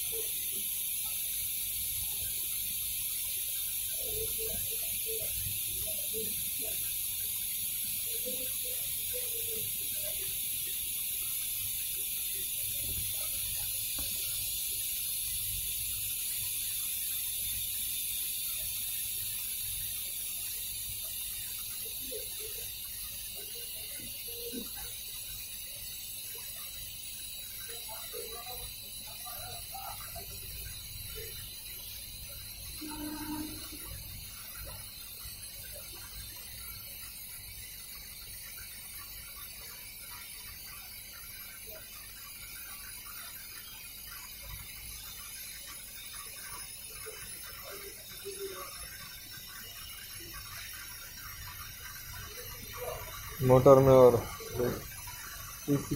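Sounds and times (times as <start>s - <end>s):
washing machine hiss and rumble: 0.0s - 55.9s.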